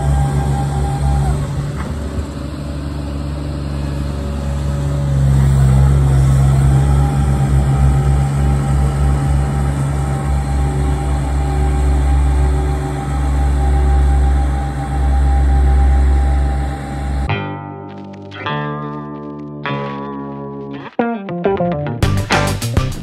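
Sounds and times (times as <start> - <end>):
drum roller engine running: 0.0 - 17.3.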